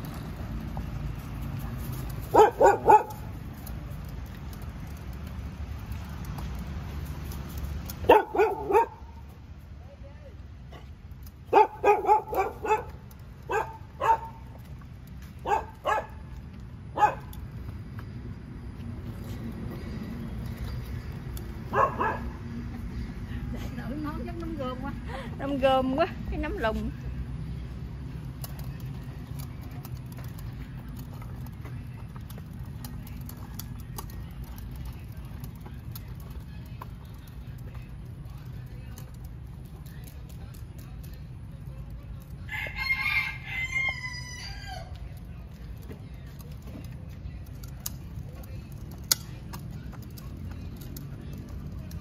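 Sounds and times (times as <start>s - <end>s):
plastic wheels rolling on pavement: 0.0s - 52.0s
dog barking: 2.3s - 3.3s, 8.0s - 9.2s, 11.5s - 14.4s, 15.4s - 16.2s, 17.0s - 17.3s, 21.7s - 22.4s.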